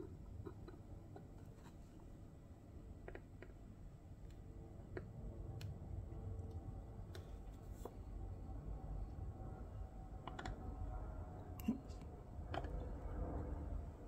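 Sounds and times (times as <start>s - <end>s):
low background rumble: 0.0s - 14.0s.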